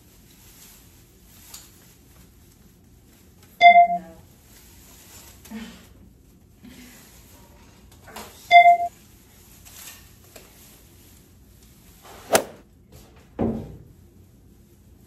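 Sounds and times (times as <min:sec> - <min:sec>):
short electronic beep: 0:03.6 - 0:04.0, 0:08.5 - 0:08.9
sharp knock: 0:12.3 - 0:12.6.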